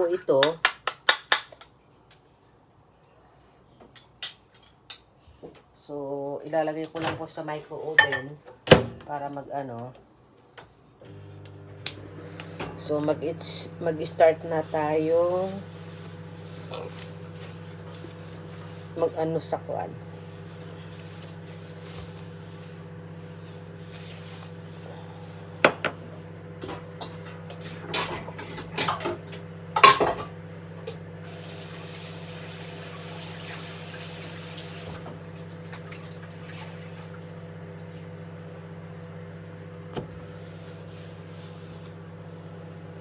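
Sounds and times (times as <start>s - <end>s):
low electrical hum: 1.5s - 43.0s
dishes and utensils knocking: 8.0s - 8.4s.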